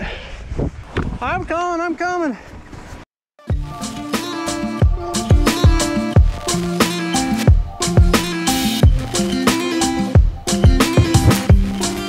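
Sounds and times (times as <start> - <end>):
plucked melody notes: 3.6 - 12.0.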